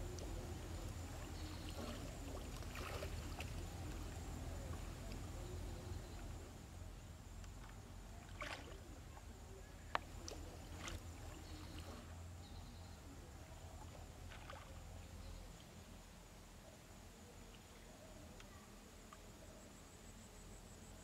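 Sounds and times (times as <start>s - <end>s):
water splashing and sloshing: 0.0s - 6.5s, 7.4s - 12.2s, 13.5s - 15.2s
low steady hum: 0.0s - 21.0s.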